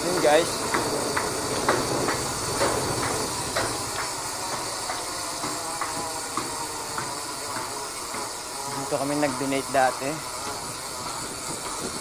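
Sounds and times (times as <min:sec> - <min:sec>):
wind on microphone: 0:10.4 - 0:12.0.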